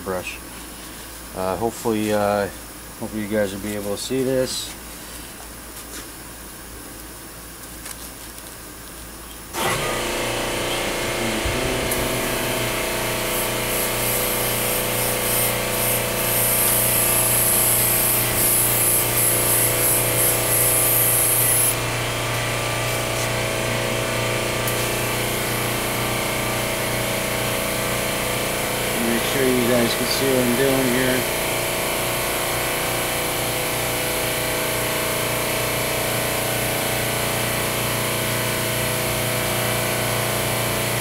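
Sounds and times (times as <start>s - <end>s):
air compressor motor humming: 8.9s - 41.0s
airbrush spraying hiss: 11.2s - 21.8s.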